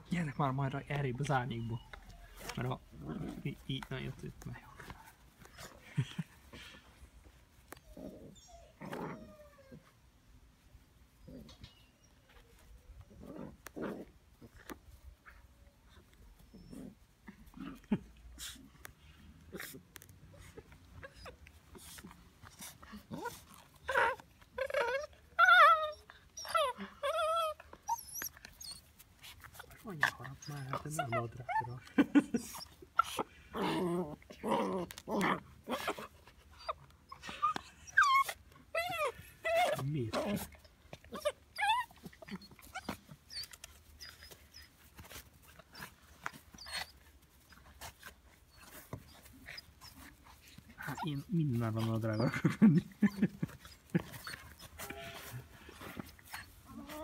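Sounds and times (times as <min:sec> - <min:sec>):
puppy whimpering: 0:00.1 - 0:03.4, 0:07.7 - 0:10.0, 0:19.5 - 0:57.0
scuffling and rustling on grass: 0:00.1 - 0:08.1, 0:28.2 - 0:36.5, 0:39.1 - 0:57.0.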